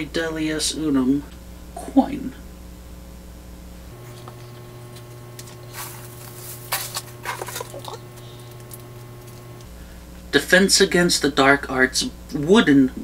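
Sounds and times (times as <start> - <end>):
shredded paper rustling: 4.0 - 9.6.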